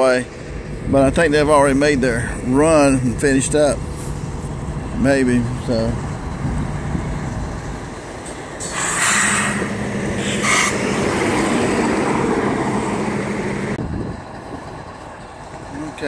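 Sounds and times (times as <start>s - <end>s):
locomotive idling: 0.0s - 16.0s
truck driving past: 0.0s - 16.0s
short air hisses: 8.6s - 10.8s.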